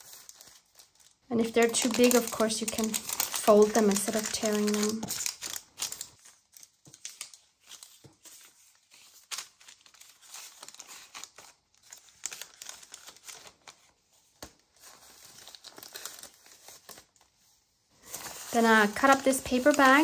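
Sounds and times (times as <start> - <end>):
paper and fabric rustling: 0.0 - 20.0.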